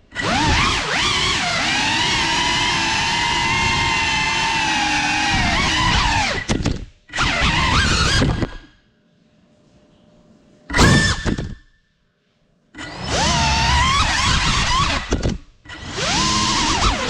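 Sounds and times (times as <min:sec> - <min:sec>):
drone motors whining: 0:00.1 - 0:08.7, 0:12.8 - 0:17.0.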